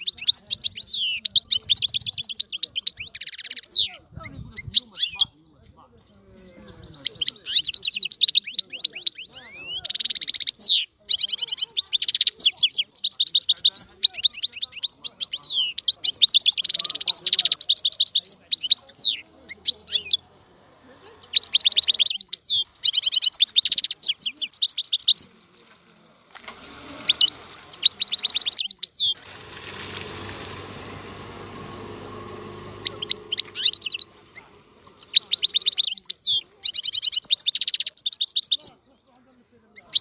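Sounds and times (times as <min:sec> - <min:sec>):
goldfinch twittering song: 0:06.2 - 0:20.2, 0:21.0 - 0:26.4, 0:27.0 - 0:40.0
faint hiss: 0:25.3 - 0:36.1.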